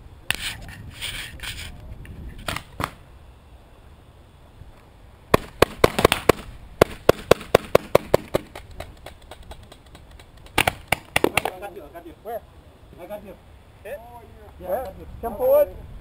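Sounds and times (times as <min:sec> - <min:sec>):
paintball pistol shots: 0:02.4 - 0:03.0, 0:05.3 - 0:09.2, 0:10.5 - 0:11.6.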